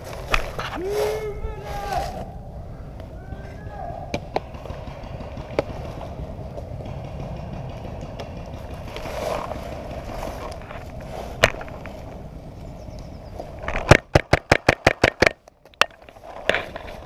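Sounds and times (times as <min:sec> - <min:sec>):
rustling and scraping of handling: 0:00.0 - 0:02.4, 0:08.2 - 0:14.2, 0:15.0 - 0:17.0
paintball shot: 0:13.8 - 0:15.4.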